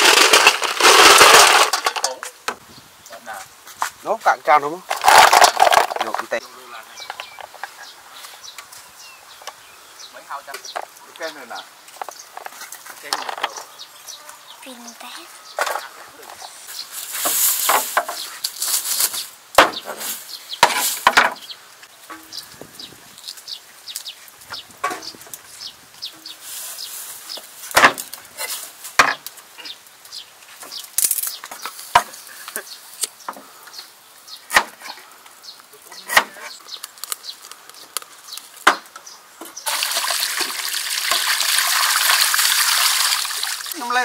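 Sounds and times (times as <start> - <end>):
water gushing from pipe: 39.6 - 43.8.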